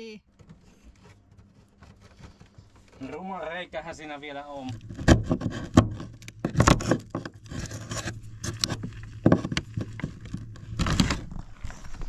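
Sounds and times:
steady low hum: 0:00.2 - 0:12.0
tools knocking and scraping: 0:04.6 - 0:11.3.

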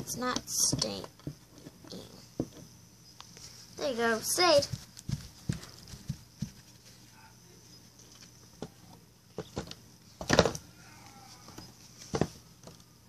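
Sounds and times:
plastic toy knocks and rustles: 0:00.3 - 0:02.6, 0:09.4 - 0:10.6, 0:12.1 - 0:12.8.

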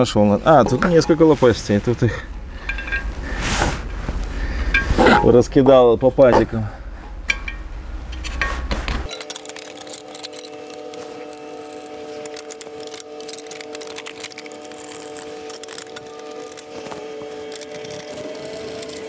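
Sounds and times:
small parts and tools clinking: 0:02.1 - 0:03.3, 0:07.3 - 0:19.0.

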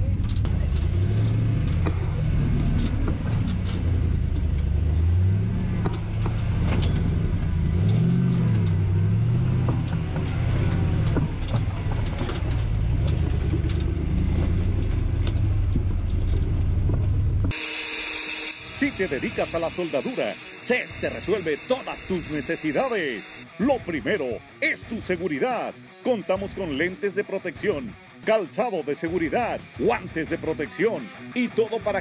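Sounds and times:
buggy engine running at low revs: 0:00.0 - 0:17.6, 0:18.6 - 0:24.2
knocks and clicks: 0:00.1 - 0:17.6.

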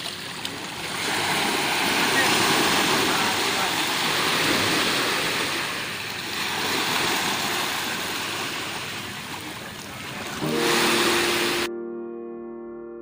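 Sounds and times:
small waves washing on beach: 0:00.0 - 0:11.7
soft piano melody: 0:10.4 - 0:13.0.

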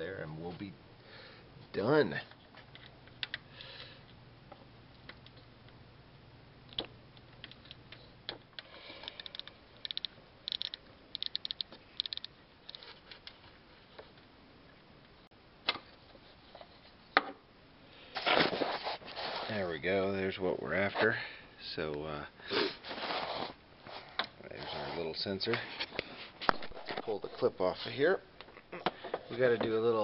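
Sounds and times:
sharp metal clicks: 0:09.0 - 0:12.3
socket ratchet clicking: 0:09.1 - 0:12.3.

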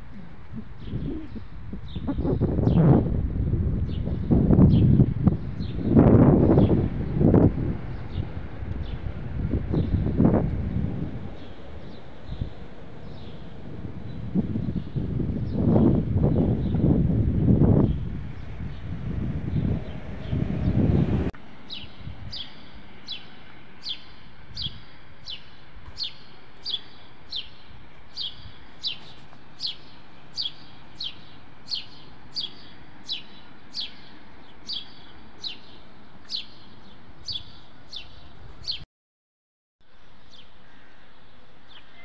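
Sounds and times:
wind rumble on microphone: 0:00.0 - 0:23.2, 0:23.8 - 0:26.3, 0:27.3 - 0:29.8, 0:30.4 - 0:38.8
low street hum: 0:00.0 - 0:38.8
small bird chirping: 0:21.7 - 0:38.8.

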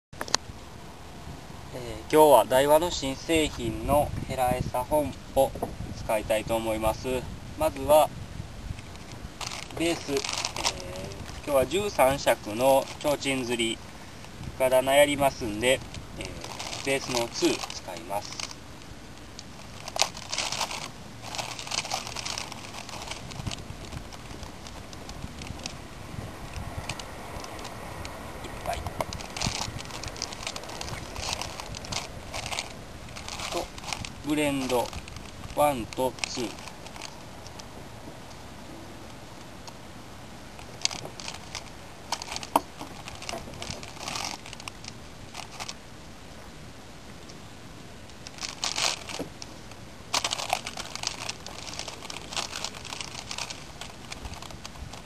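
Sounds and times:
plastic bag crinkling: 0:08.7 - 0:25.8, 0:26.4 - 0:37.8, 0:40.5 - 0:45.8, 0:48.1 - 0:55.0.

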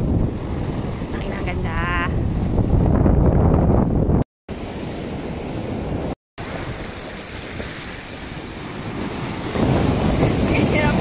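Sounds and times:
wind buffeting microphone: 0:00.0 - 0:11.0
surf breaking on shore: 0:04.5 - 0:11.0.

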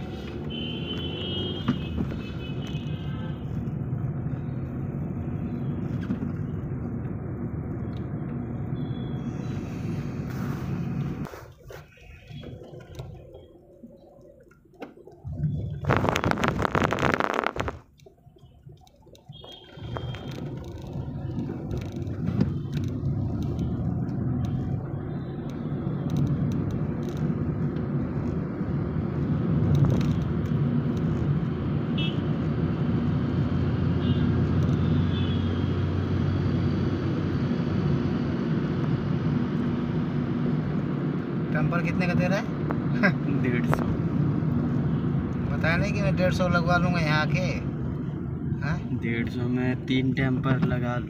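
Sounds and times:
car driving rumble inside cabin: 0:00.0 - 0:11.3, 0:19.3 - 0:51.0
road noise: 0:00.0 - 0:51.0
loud crackling rush: 0:15.7 - 0:17.9.

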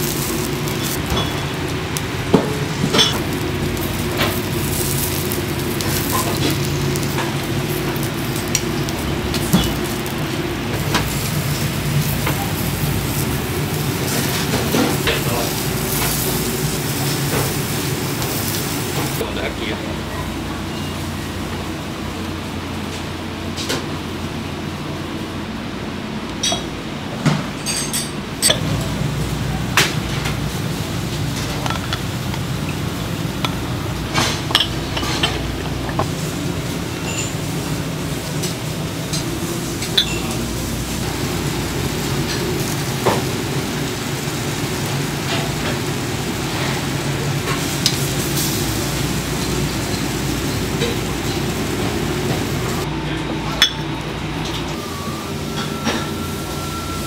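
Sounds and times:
utensils clinking: 0:00.0 - 0:19.2, 0:26.4 - 0:28.9, 0:31.2 - 0:36.2, 0:36.9 - 0:37.6, 0:38.4 - 0:40.6
grill sizzling: 0:00.0 - 0:57.0
kitchen hum: 0:00.0 - 0:57.0
dishes and utensils clinking: 0:00.7 - 0:01.7, 0:02.3 - 0:03.4, 0:09.3 - 0:10.0, 0:26.4 - 0:28.9, 0:31.3 - 0:32.8, 0:33.4 - 0:36.1, 0:37.0 - 0:37.4, 0:39.1 - 0:40.5, 0:53.5 - 0:54.8.

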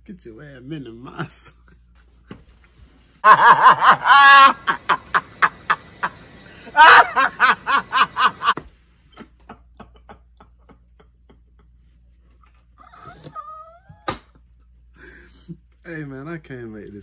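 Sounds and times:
man laughing loudly: 0:03.2 - 0:08.6, 0:09.2 - 0:12.0
breathy laughter: 0:03.2 - 0:12.0.

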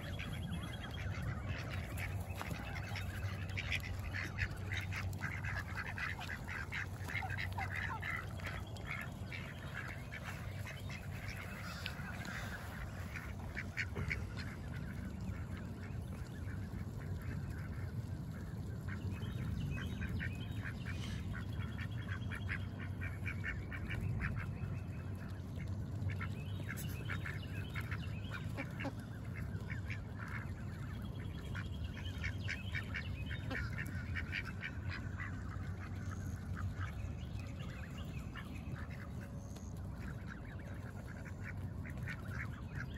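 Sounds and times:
geese honking: 0:00.0 - 0:15.6
ducks quacking: 0:00.0 - 0:42.9.

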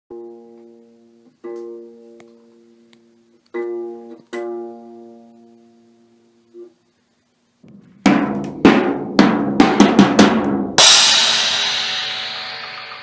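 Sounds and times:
plucked guitar chords: 0:00.1 - 0:05.4.

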